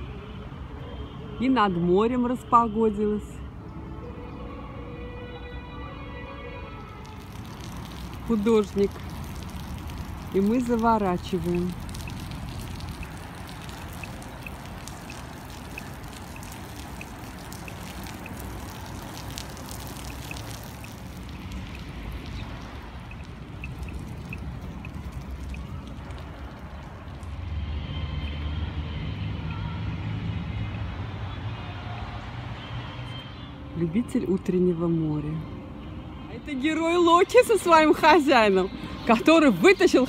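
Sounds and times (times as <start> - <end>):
water drips and clicks: 6.8 - 27.4.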